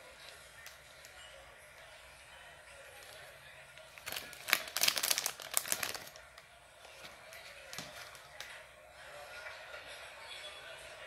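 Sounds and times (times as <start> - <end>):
foil wrapper crinkling: 3.9 - 6.3.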